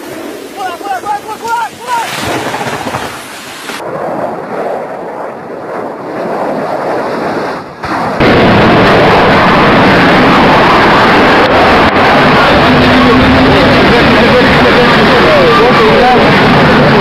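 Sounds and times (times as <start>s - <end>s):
jet aircraft roaring: 0.0s - 17.0s.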